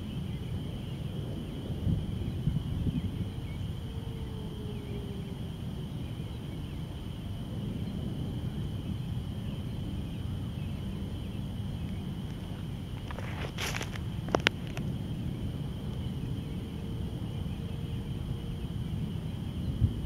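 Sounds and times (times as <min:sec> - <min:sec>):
chorus of small calling animals: 0:02.2 - 0:12.1, 0:15.4 - 0:19.8.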